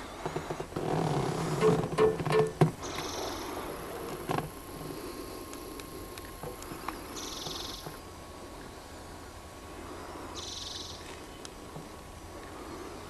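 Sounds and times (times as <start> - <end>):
low background hum: 0.0 - 13.0
songbird trills: 1.6 - 3.6, 7.0 - 8.0, 10.3 - 11.6.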